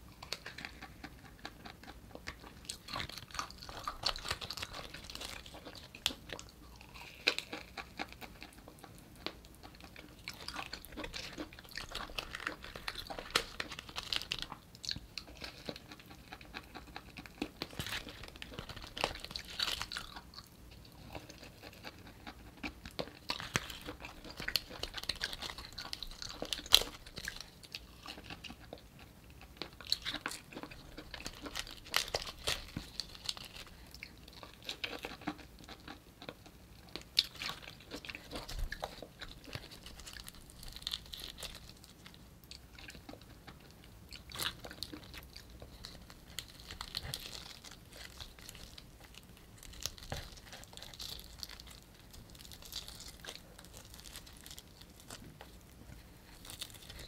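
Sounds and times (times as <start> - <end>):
person chewing artichoke leaves: 0.0 - 57.0.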